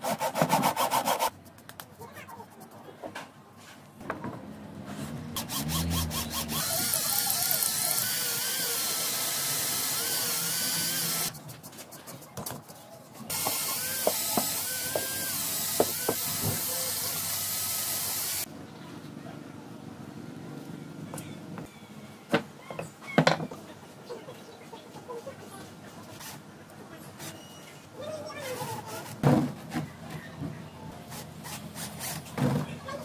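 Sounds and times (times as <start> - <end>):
cordless drill boring into concrete: 5.4 - 11.3, 13.3 - 18.5.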